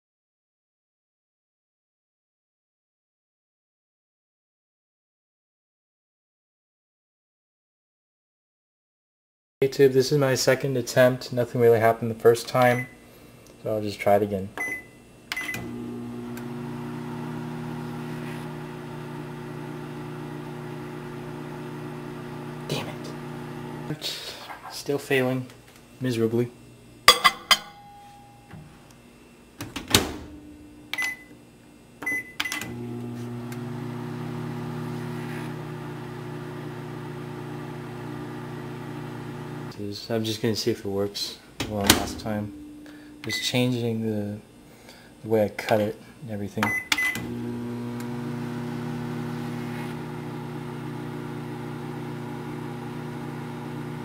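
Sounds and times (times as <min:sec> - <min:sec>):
keypad beeps: 0:14.6 - 0:15.6, 0:30.9 - 0:31.3, 0:32.0 - 0:32.7, 0:46.6 - 0:47.2
microwave oven humming: 0:14.6 - 0:24.0, 0:27.7 - 0:39.8, 0:41.6 - 0:44.4, 0:46.6 - 0:54.0.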